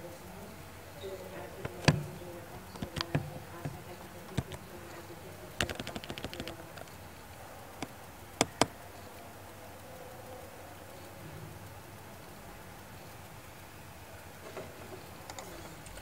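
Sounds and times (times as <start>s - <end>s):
faint steady hum: 0.0s - 16.0s
keyboard keystrokes: 1.6s - 4.8s, 5.6s - 7.0s, 7.8s - 8.8s.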